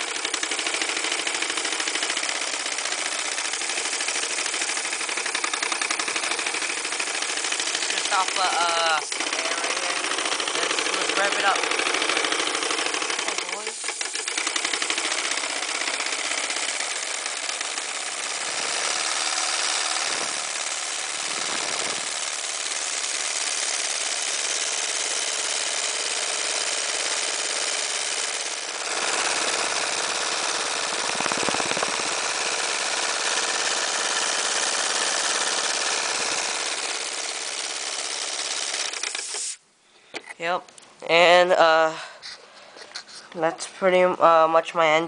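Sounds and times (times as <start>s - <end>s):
hiss of escaping air: 39.1s - 39.6s.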